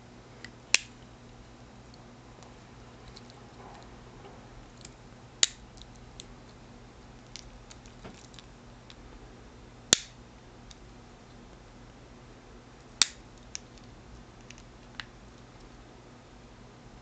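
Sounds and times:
lighter sharp clicks: 0:09.9 - 0:10.2.

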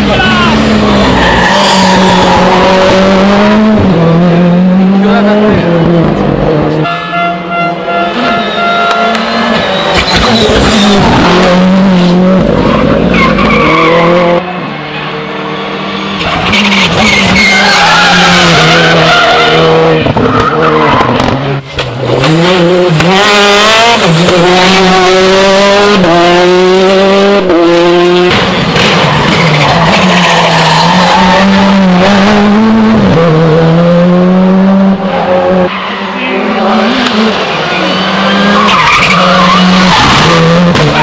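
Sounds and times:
rally car engines revving: 0:00.0 - 0:41.0
tyre squeal: 0:01.0 - 0:02.7, 0:08.1 - 0:11.2.

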